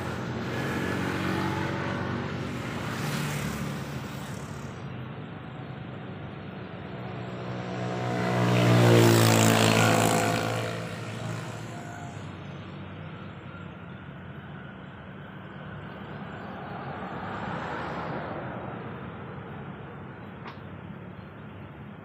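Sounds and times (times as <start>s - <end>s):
vehicle passing: 7.0s - 12.3s.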